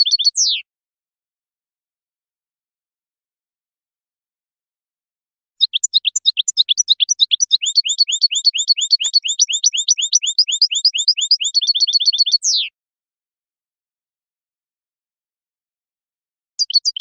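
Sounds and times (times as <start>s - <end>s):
finch singing high chirps and trill: 0.0s - 0.6s, 5.6s - 12.7s, 16.6s - 17.0s.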